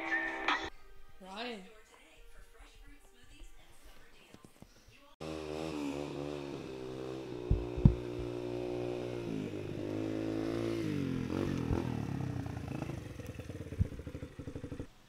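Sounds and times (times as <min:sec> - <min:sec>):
dirt bike engine running: 0:05.2 - 0:14.9
sharp thumps: 0:07.4 - 0:08.4.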